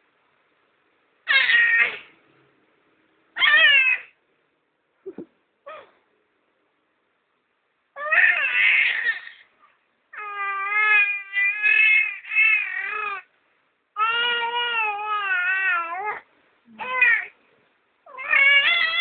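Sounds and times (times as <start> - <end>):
baby crying: 1.3 - 2.1, 3.4 - 4.2, 8.0 - 9.5, 10.1 - 13.3, 14.0 - 16.2, 16.8 - 17.4, 18.1 - 19.0.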